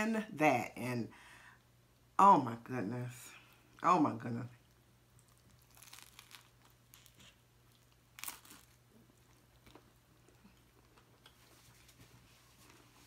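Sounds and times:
crunching and chewing sandwich: 4.7 - 12.9.

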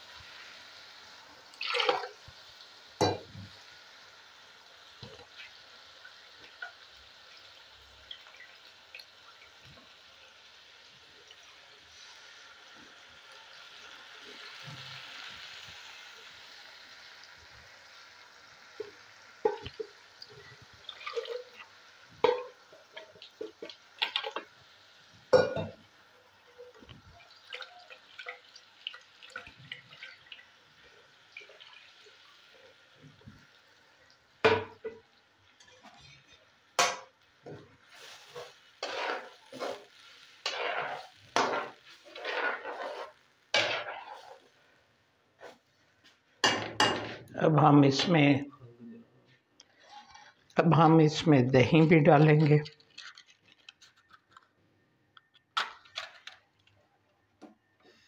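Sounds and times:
onions sizzling in a pan: 0.0 - 48.3
metal spoon scraping a pan: 35.6 - 44.5, 49.7 - 50.4.

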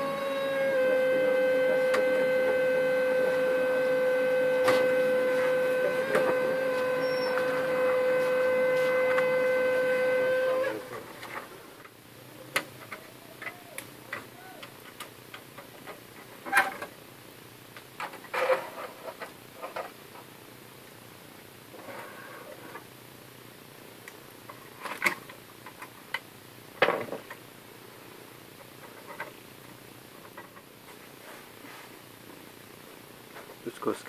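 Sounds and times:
printer motor high whine: 0.0 - 11.0.

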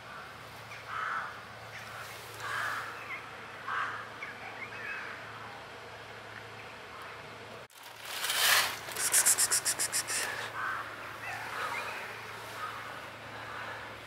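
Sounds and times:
rattle of sharp ticks: 8.9 - 10.4
faint animal calls: 9.0 - 13.8.

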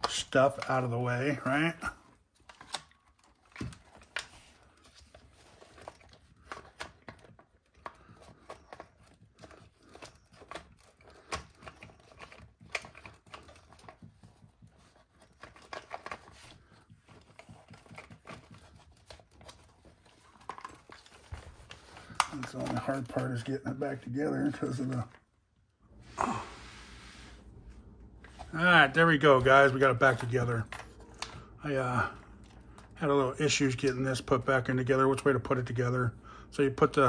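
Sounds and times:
plastic parts clicking and rattling: 0.0 - 25.3.

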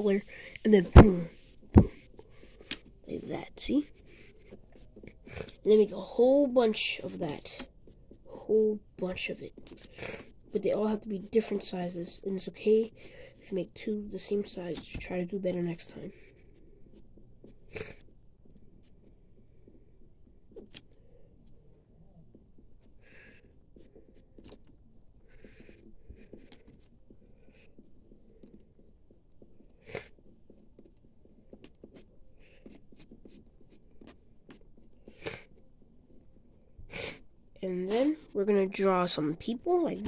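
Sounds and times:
pencil scratching on paper: 0.0 - 40.0.

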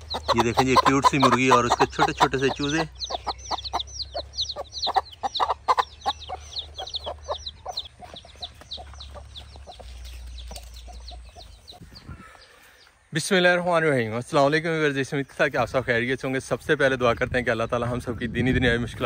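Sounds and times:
hen clucking: 0.0 - 13.0
chicks peeping: 0.0 - 19.0.

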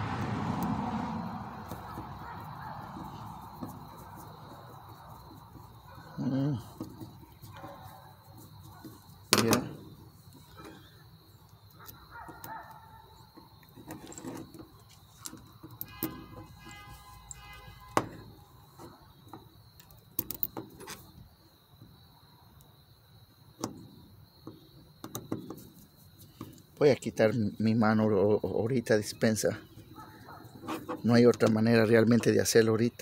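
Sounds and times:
small parts clicking on concrete: 19.7 - 21.0.

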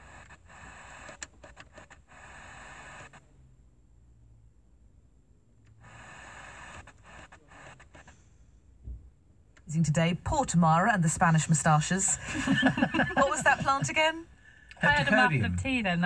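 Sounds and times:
radio crackles: 0.0 - 3.3, 5.7 - 8.1, 9.6 - 16.0
radio static hiss: 0.0 - 3.4, 5.8 - 8.2, 9.7 - 16.0.

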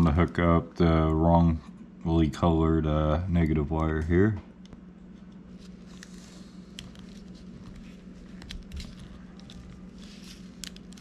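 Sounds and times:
wires and connector clicking: 6.7 - 11.0.

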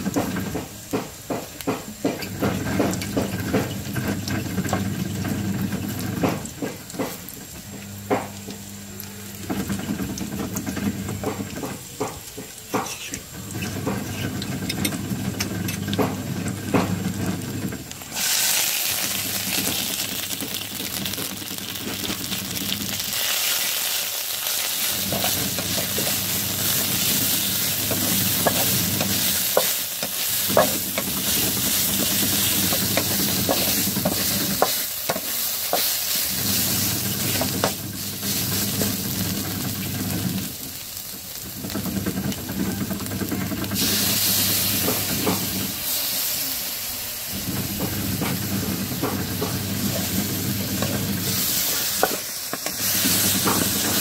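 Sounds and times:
paste sizzling in oil: 0.0 - 54.0
spatula tapping pan: 24.7 - 36.2
wooden spatula scraping pan: 24.7 - 39.0.

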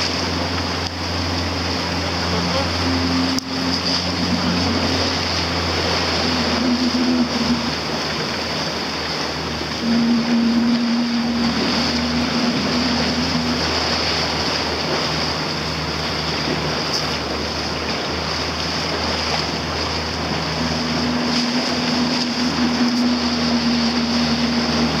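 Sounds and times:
boat motor droning: 0.0 - 25.0
higher engine note: 0.0 - 25.0
water spray rushing along hull: 0.0 - 25.0
wind on microphone: 18.9 - 25.0.

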